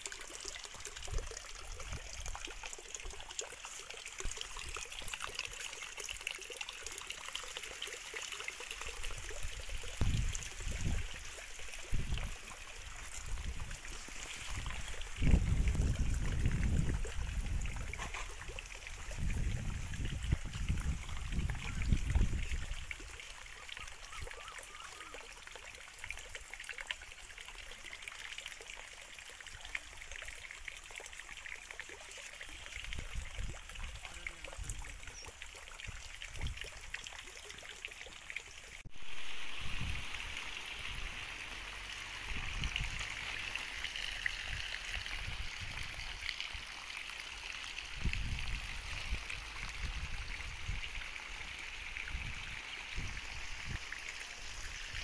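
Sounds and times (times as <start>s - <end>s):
water trickling: 0.0s - 55.0s.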